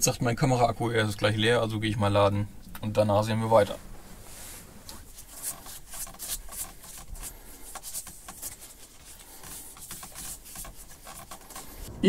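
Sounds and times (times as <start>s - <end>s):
rubbing and scratching handling noises: 3.4s - 11.9s.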